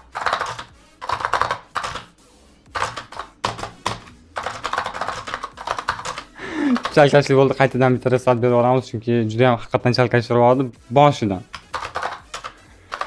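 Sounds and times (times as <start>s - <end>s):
mechanical keyboard typing: 0.0s - 2.1s, 2.7s - 7.1s, 11.5s - 13.0s.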